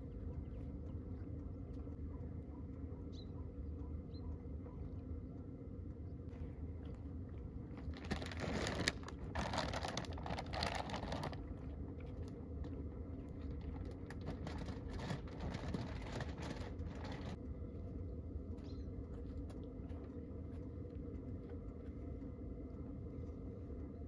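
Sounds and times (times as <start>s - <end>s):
plastic food bag rustling: 7.8s - 11.4s, 13.8s - 17.4s
dog crunching dry food: 7.8s - 11.7s, 13.4s - 17.4s.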